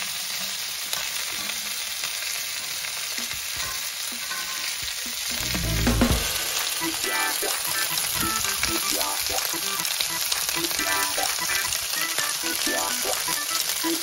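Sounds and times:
meat sizzling on griddle: 0:00.0 - 0:14.0
low rumble and bump: 0:05.3 - 0:06.6.

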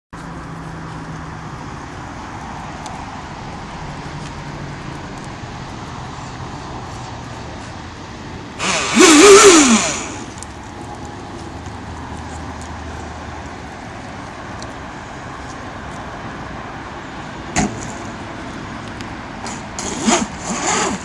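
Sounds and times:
electric motor whine: 0:08.6 - 0:10.4
spinning propeller rush: 0:08.6 - 0:10.4.

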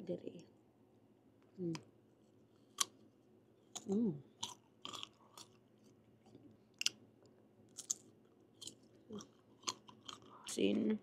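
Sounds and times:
chewing mango: 0:02.6 - 0:07.0, 0:07.7 - 0:10.6.

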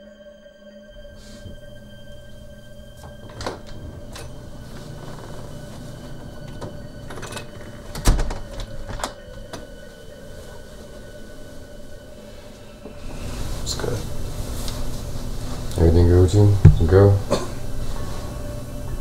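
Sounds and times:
steady electrical hum: 0:00.9 - 0:19.0
door knocks and clicks: 0:03.0 - 0:09.6
door thump: 0:16.6 - 0:17.0.

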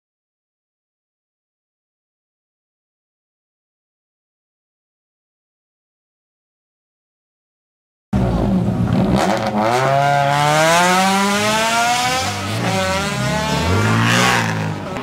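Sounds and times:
car engine revving at full throttle: 0:08.2 - 0:15.0.

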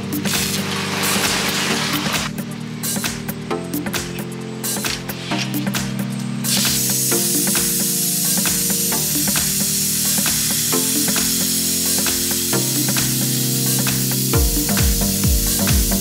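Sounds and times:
plasma cutter hissing: 0:00.0 - 0:03.0, 0:04.7 - 0:16.0
background music: 0:00.0 - 0:16.0.

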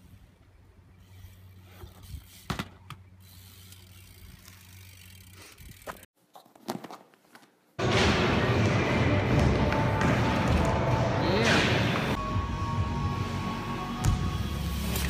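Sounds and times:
bicycle freewheel ticking: 0:03.2 - 0:06.1.

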